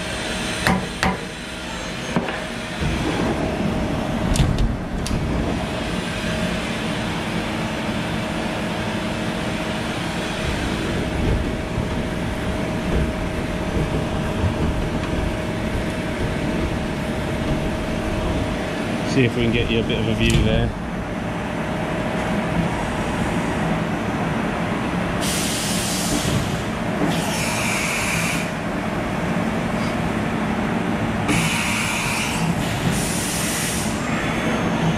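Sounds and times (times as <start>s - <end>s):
machine humming: 0.0s - 21.5s.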